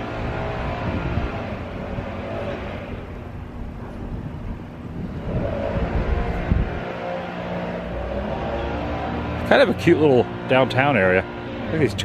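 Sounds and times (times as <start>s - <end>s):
leaf blower engine drone: 0.0s - 12.0s.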